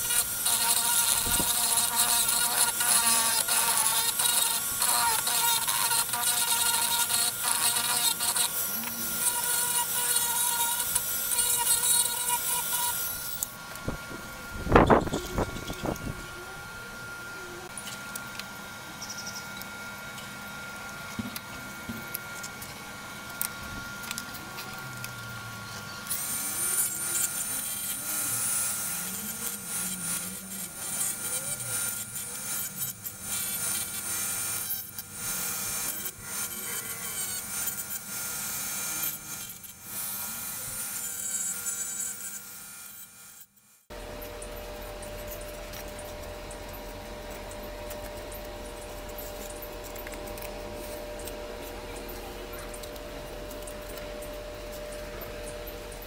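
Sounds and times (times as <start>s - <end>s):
steady low hum: 0.0s - 31.5s, 43.8s - 56.0s
rotary tool grinding wood: 0.0s - 56.0s.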